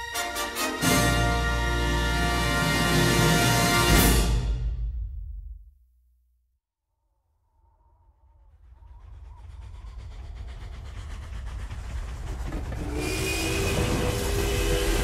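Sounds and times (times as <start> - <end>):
train rumble: 8.1 - 15.0.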